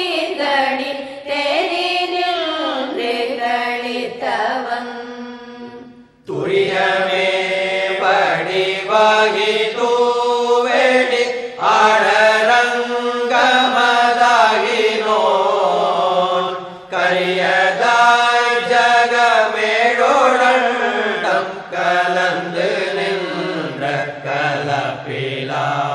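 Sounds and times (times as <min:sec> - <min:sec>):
person chanting a hymn: 0:00.0 - 0:25.9.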